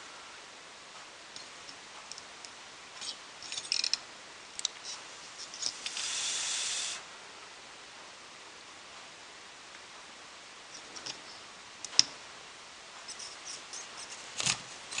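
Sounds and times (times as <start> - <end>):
soldering iron scraping metal: 4.8 - 7.0
flux sizzling: 5.6 - 7.1.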